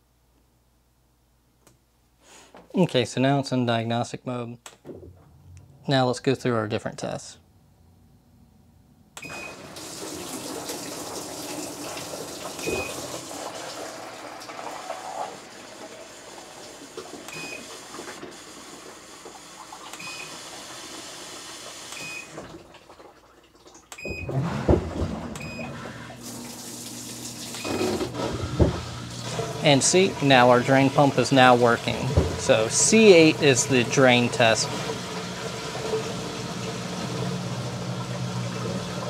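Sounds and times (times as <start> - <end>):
drain pump humming: 9.2 - 39.0
water hissing into washer tub: 9.3 - 39.0
control panel beep: 25.4 - 25.7.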